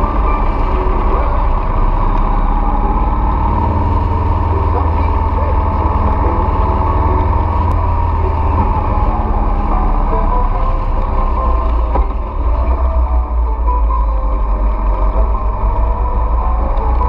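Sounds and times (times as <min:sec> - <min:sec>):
motorcycle engine: 0:00.0 - 0:17.0
wind rumble: 0:00.0 - 0:17.0.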